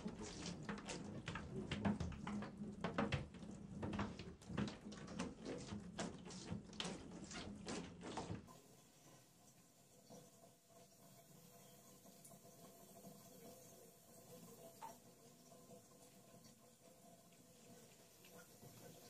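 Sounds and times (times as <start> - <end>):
water splashing in a tub: 0.0 - 9.3
hand swishing water: 4.8 - 8.5
faint faucet trickle: 8.6 - 19.0.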